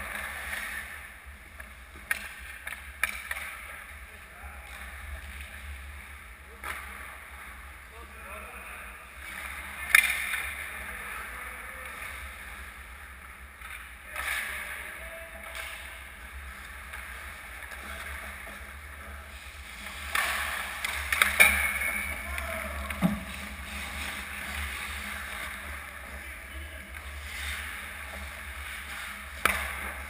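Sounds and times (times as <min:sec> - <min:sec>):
stick and puck clacks: 0:00.0 - 0:04.0, 0:06.5 - 0:07.5, 0:09.2 - 0:10.9, 0:13.4 - 0:30.0
skates scraping on ice: 0:09.2 - 0:30.0.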